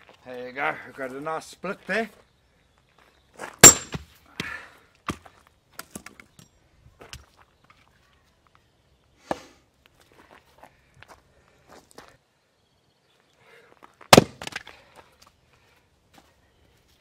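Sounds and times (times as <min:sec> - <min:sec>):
wood pieces knocking and clicking: 0:05.8 - 0:06.5
log splitting with a crack: 0:14.1 - 0:14.7.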